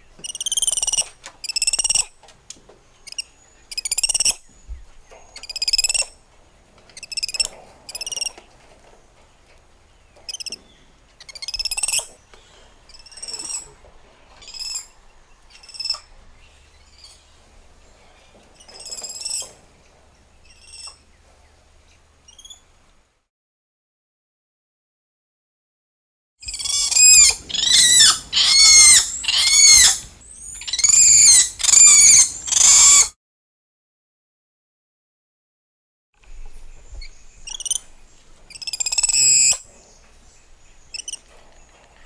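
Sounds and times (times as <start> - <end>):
monkeys chirping calls: 0.2 - 2.1, 3.0 - 4.4, 5.4 - 6.2, 7.0 - 8.4, 10.3 - 10.6, 11.2 - 12.2, 12.9 - 13.8, 14.4 - 16.1, 18.6 - 19.5, 20.4 - 21.0, 26.4 - 33.1, 37.0 - 39.7, 40.9 - 41.3.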